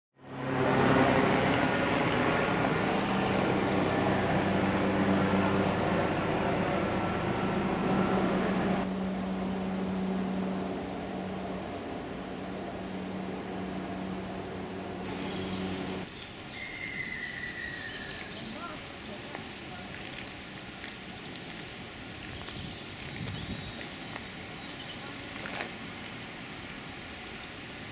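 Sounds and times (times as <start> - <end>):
mechanical hum: 4.5 - 17.5
bird chirps: 15.1 - 21.4.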